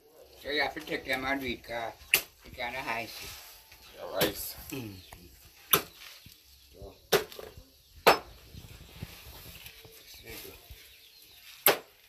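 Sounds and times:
machete chopping meat on wood: 5.7s - 6.0s, 8.0s - 8.3s, 11.6s - 12.0s.

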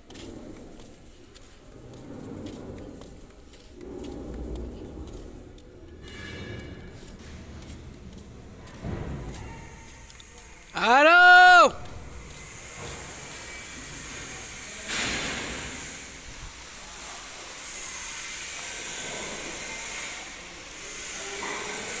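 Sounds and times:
steady hissing factory noise: 0.0s - 22.0s
sudden loud hiss: 10.8s - 22.0s.

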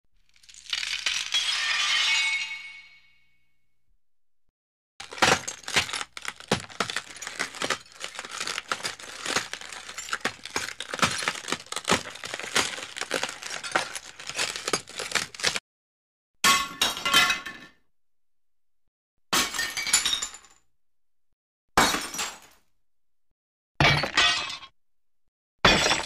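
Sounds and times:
glass breaking and crunching: 0.4s - 2.9s, 5.0s - 15.6s, 23.8s - 24.7s, 25.6s - 26.0s.

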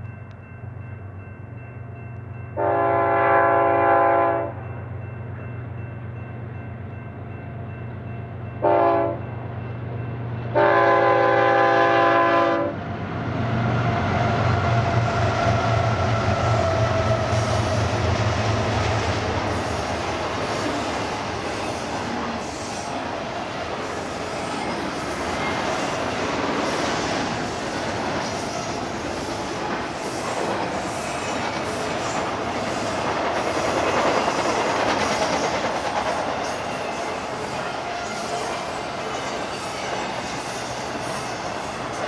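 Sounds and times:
train rumble and wheel rattle: 0.0s - 42.0s
locomotive air horn blasts: 2.6s - 4.6s, 8.6s - 9.2s, 10.6s - 12.8s.

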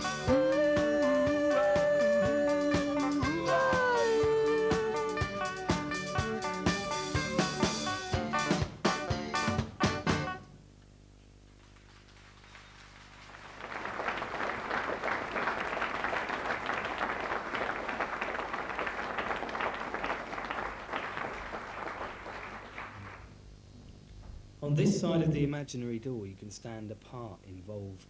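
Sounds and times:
faint low hum: 10.3s - 28.0s
audience applauding: 11.6s - 23.3s.

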